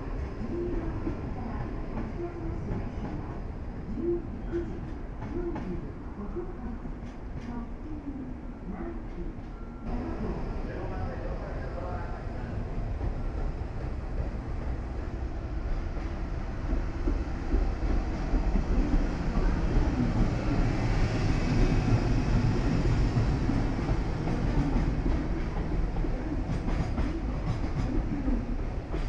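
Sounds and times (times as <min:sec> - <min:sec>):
electric locomotive passing: 0:08.2 - 0:29.0.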